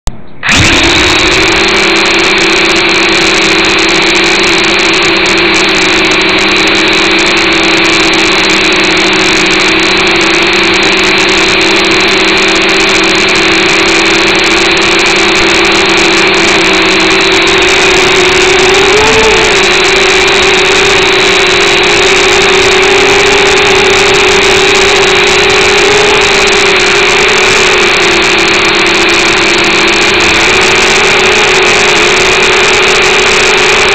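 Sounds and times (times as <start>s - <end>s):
quadcopter motors whining: 0.4s - 33.9s.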